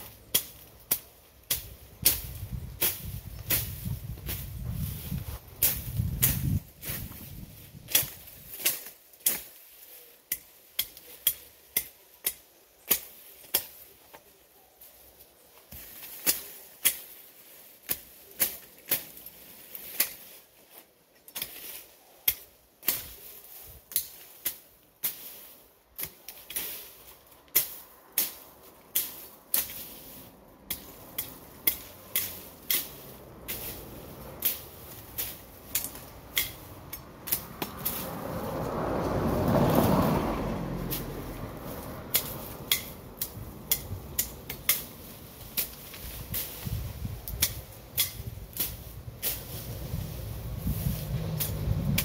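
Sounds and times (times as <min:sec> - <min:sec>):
machete chopping into weeds: 0:00.0 - 0:14.3, 0:15.6 - 0:20.5, 0:21.2 - 0:40.1, 0:40.8 - 0:52.0.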